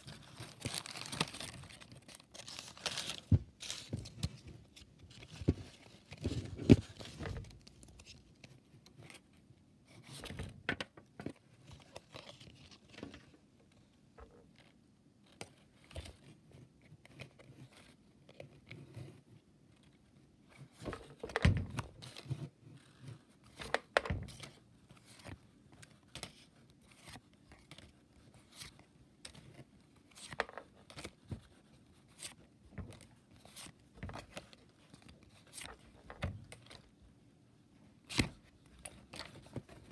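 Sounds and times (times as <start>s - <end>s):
trading cards rustling: 0.0s - 8.5s.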